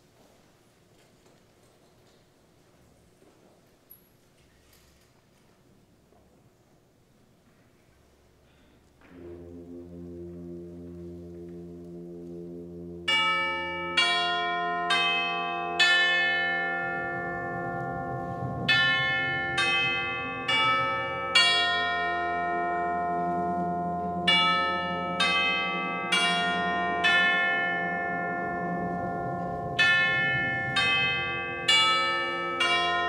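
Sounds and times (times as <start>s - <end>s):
tubular bells ringing: 9.0s - 33.0s
wind band sustained low chord: 9.0s - 33.0s.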